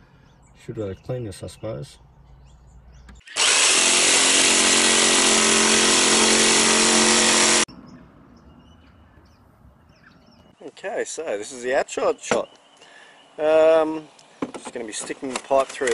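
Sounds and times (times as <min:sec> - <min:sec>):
jigsaw cutting fiberglass: 0:03.2 - 0:07.7.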